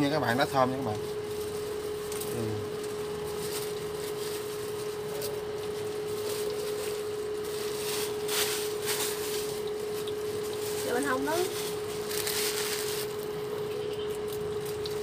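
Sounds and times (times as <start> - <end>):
induction cooktop hum: 0.0 - 15.0
leaves dropped into pan: 1.4 - 13.3.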